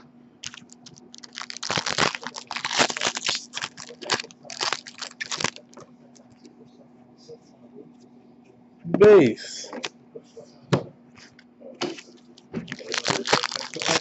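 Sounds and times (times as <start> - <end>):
foil wrapper tearing and crinkling: 0.4 - 5.8, 12.7 - 14.0.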